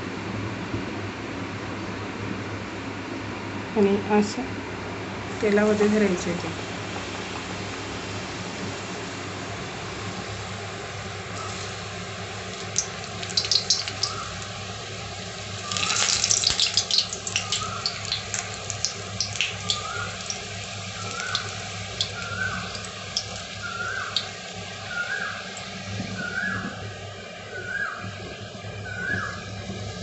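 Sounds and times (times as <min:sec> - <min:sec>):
dough deep-frying in hot oil: 0:05.2 - 0:30.0
oil crackles and pops: 0:11.3 - 0:25.7.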